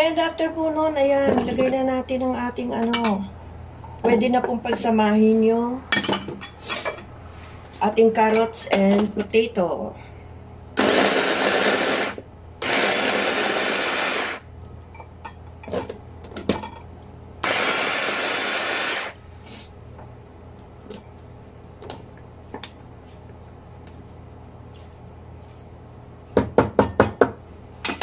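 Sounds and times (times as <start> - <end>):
food chopper motor whirring: 10.8 - 14.5, 17.4 - 19.2.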